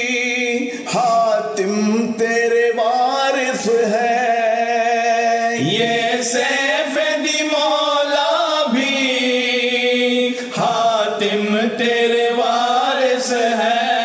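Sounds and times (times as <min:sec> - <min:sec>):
men chanting in unison: 0:00.0 - 0:14.0.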